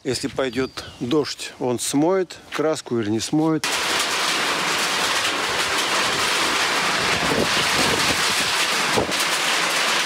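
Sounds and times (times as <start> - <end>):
wind: 0.0 - 10.0
hail and heavy rain on roof: 3.6 - 10.0.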